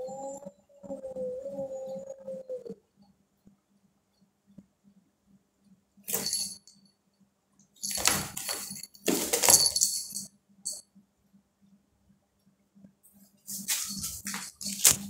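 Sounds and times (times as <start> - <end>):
cat claws scraping cardboard: 13.7 - 15.0.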